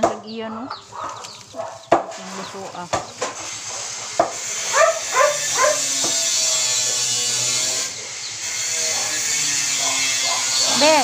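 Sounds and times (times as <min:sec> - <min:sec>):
dog barking: 0:00.4 - 0:02.2, 0:03.6 - 0:06.2, 0:09.0 - 0:11.0.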